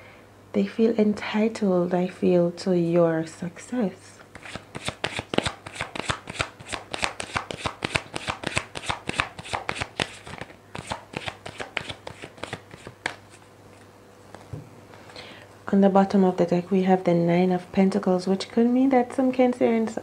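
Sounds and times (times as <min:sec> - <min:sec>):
cards shuffling: 0:04.3 - 0:14.6.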